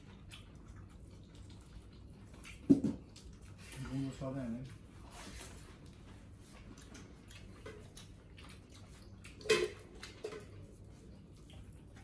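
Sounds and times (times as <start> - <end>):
chewing clicks and smacks: 0.0 - 3.8, 6.6 - 12.0.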